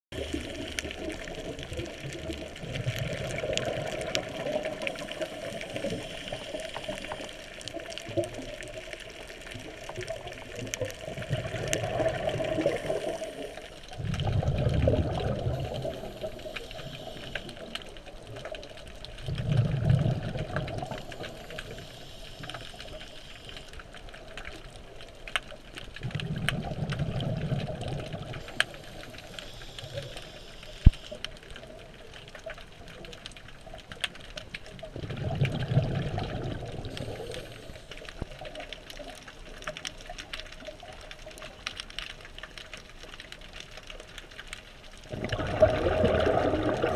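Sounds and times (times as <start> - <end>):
crackle of fine clicks: 0.1 - 46.9
diver's exhaled bubbles: 0.2 - 8.8, 9.8 - 17.2, 19.2 - 21.4, 26.0 - 28.6, 34.9 - 37.7, 45.1 - 46.9.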